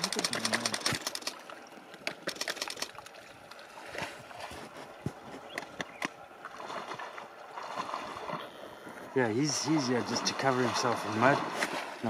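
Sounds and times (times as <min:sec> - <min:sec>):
water splashing: 0:00.0 - 0:12.0.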